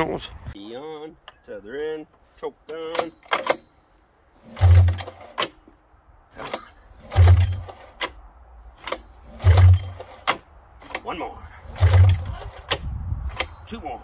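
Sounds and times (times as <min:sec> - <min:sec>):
engine cranking chug: 0:04.4 - 0:05.6, 0:06.4 - 0:08.2, 0:08.8 - 0:13.5
recoil starter rope whirring: 0:04.4 - 0:05.6, 0:06.3 - 0:08.2, 0:08.8 - 0:13.8.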